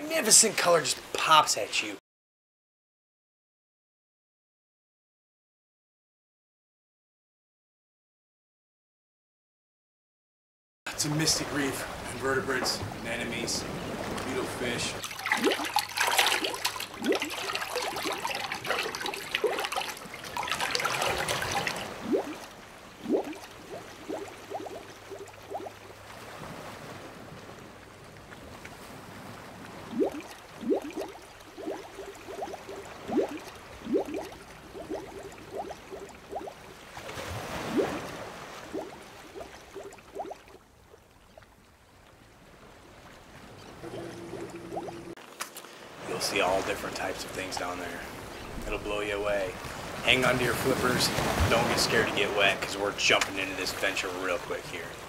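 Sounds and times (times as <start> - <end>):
water bubbling and gurgling: 10.9 - 26.6, 28.2 - 45.2
hissing rush of bubbles: 15.0 - 25.7, 29.9 - 36.6.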